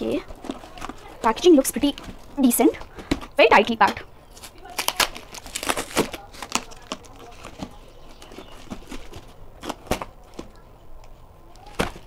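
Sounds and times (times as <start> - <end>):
cardboard parcel being torn open: 4.3 - 10.5.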